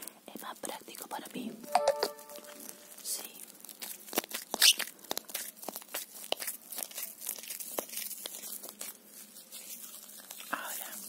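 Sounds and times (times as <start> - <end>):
cloth crumpling and crinkling: 2.5 - 11.0.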